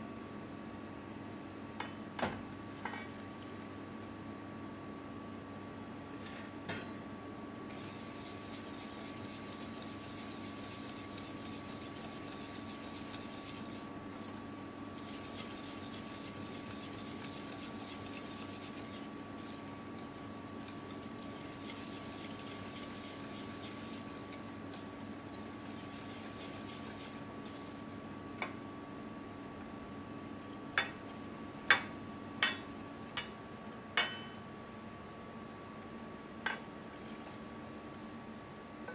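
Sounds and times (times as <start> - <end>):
whisk scraping metal bowl: 7.7 - 28.1.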